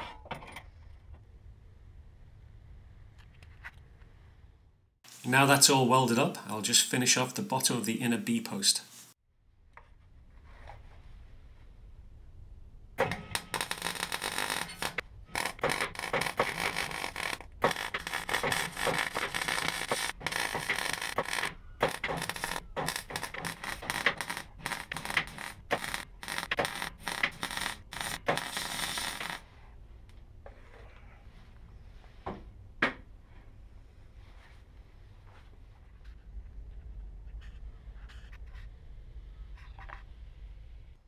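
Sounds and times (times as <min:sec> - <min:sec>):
welding arc crackling: 0:13.2 - 0:29.4.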